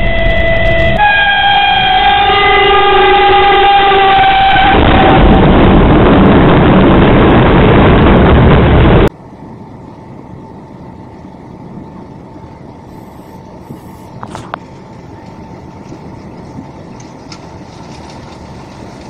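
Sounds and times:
train horn chord: 0.0s - 5.4s
train passing rumble: 0.0s - 19.0s.

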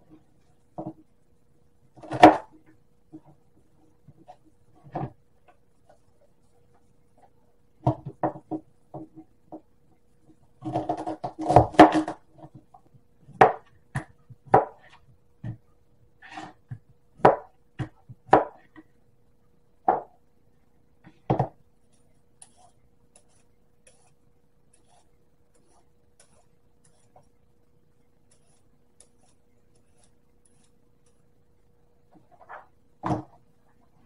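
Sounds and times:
knife chopping on plastic board: 13.3s - 15.6s, 16.2s - 18.7s.

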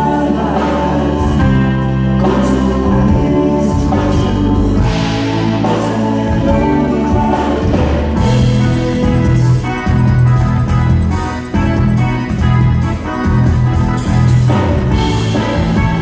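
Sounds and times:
drum kit: 0.0s - 16.0s
electric guitar: 0.0s - 16.0s
rock band playing: 0.0s - 16.0s.

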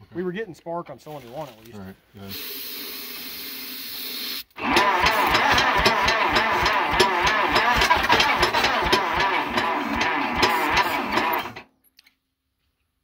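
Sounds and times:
electric starter whine: 4.5s - 11.7s
engine chugging while cranked: 4.6s - 11.6s.

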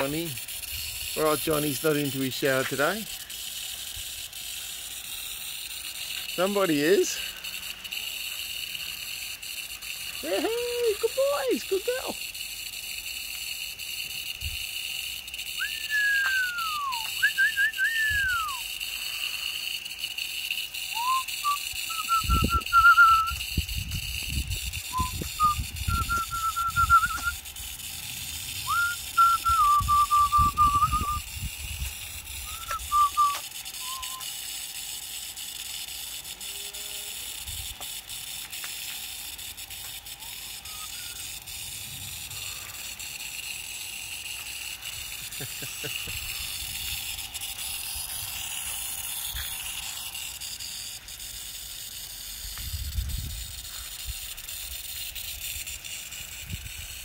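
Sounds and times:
water spray hissing: 0.0s - 57.0s
person whistling: 15.6s - 18.6s, 20.9s - 23.4s, 24.8s - 27.4s, 28.6s - 31.3s, 32.4s - 34.3s, 40.2s - 41.5s.

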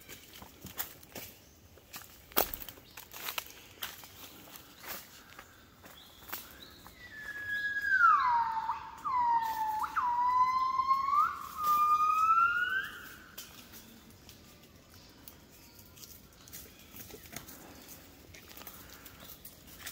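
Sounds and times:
gibbon singing: 7.2s - 13.3s.

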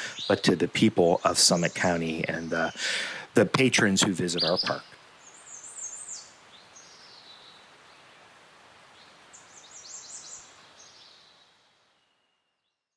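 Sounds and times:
steady hiss: 0.0s - 12.2s.

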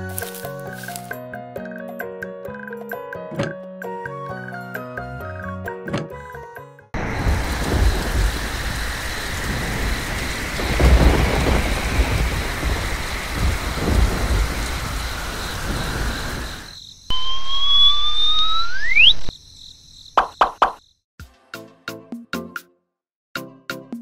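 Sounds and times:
steady rain: 7.0s - 16.8s
thunder rumbling: 7.0s - 17.7s
rising whistle-like tone: 17.1s - 19.3s.

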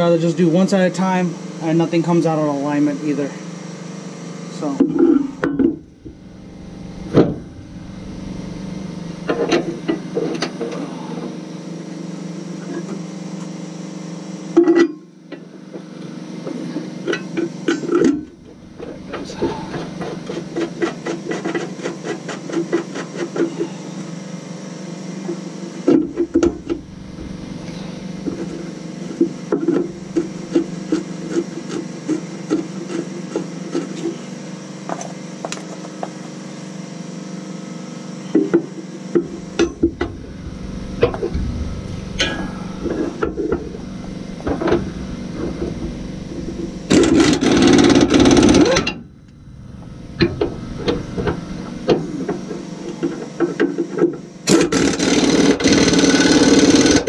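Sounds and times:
steady low hum: 0.0s - 57.0s
sharp metal knocks: 39.2s - 49.1s.

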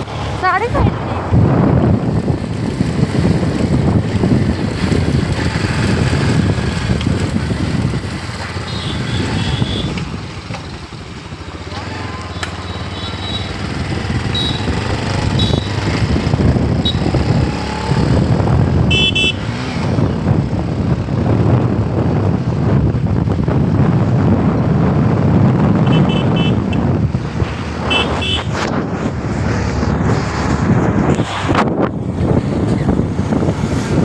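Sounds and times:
wind rush on microphone: 0.0s - 11.4s, 13.4s - 34.0s
motorcycle running: 0.0s - 34.0s
short horn beeps: 14.3s - 15.8s.

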